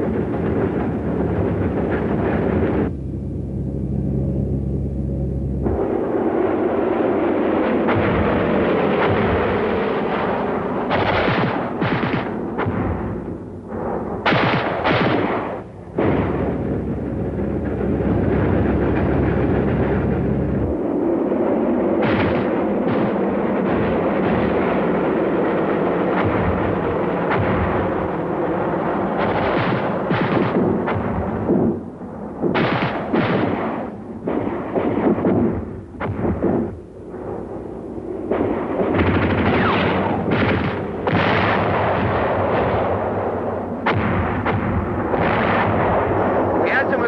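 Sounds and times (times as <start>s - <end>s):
artillery booms: 5.6s - 47.0s
gunfire: 7.0s - 20.8s, 21.9s - 37.4s, 38.2s - 47.0s.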